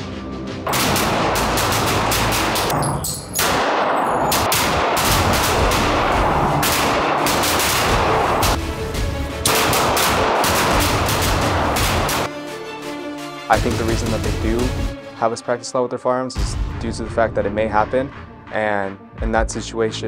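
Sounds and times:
rapid handgun fire: 0.7s - 2.8s, 3.4s - 8.6s, 9.4s - 12.3s.

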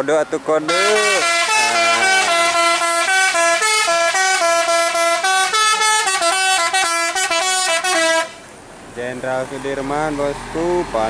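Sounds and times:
bus musical horn playing tune: 0.7s - 8.4s.

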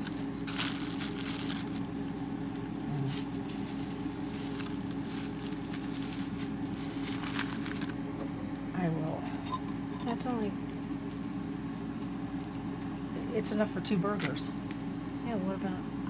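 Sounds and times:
plastic bag crinkling: 0.0s - 8.1s
low machine hum: 0.0s - 16.0s.

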